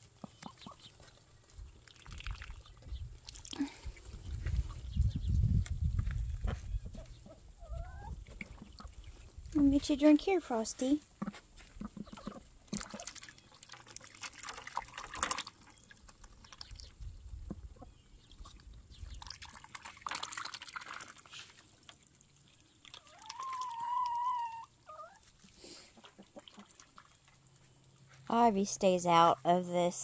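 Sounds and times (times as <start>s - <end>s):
hose water splashing into bucket: 1.7s - 3.9s, 12.6s - 16.9s, 18.5s - 24.2s.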